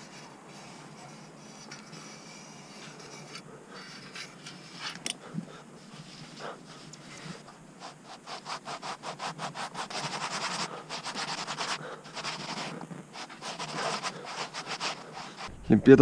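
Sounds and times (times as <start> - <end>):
cloth rag rubbing tyre: 5.8 - 15.5.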